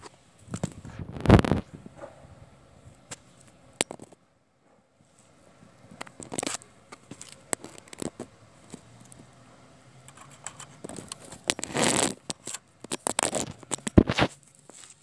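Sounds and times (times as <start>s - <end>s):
camera handling rustles and clicks: 6.0s - 9.2s, 10.1s - 15.0s
scraping rustle: 10.1s - 15.0s.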